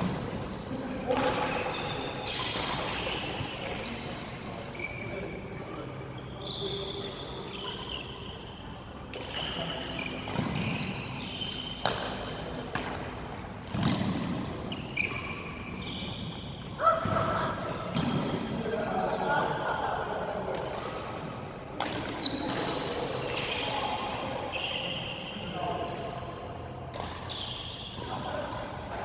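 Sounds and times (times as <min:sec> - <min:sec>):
shoes squeaking on floor: 0:00.0 - 0:12.6, 0:13.8 - 0:17.2, 0:22.2 - 0:26.6, 0:27.2 - 0:28.4
racket hitting shuttlecock: 0:09.1 - 0:15.2, 0:21.8 - 0:23.6.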